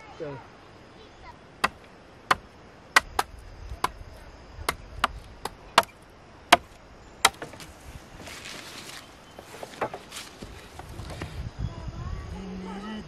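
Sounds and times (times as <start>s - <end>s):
blade chopping wooden sticks: 6.5s - 7.7s.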